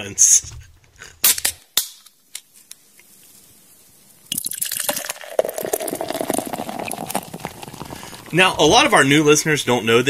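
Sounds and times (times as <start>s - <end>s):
beer being poured: 3.2s - 9.7s.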